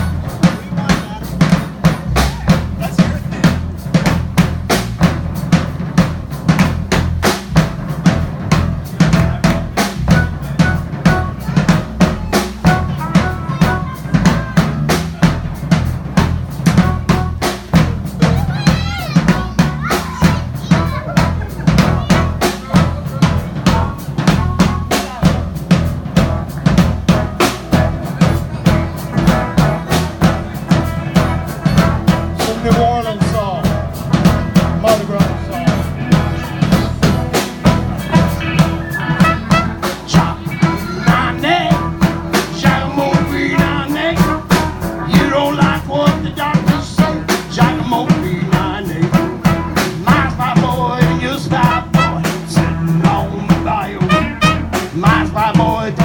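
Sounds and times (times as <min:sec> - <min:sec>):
drum kit beat: 0:00.0 - 0:56.0
saxophone: 0:09.1 - 0:15.4, 0:35.9 - 0:50.6, 0:51.2 - 0:53.1, 0:53.8 - 0:55.2
trumpet: 0:09.2 - 0:15.7, 0:16.7 - 0:18.4, 0:33.4 - 0:56.0
electric guitar: 0:33.7 - 0:56.0
harmonica: 0:35.8 - 0:45.4.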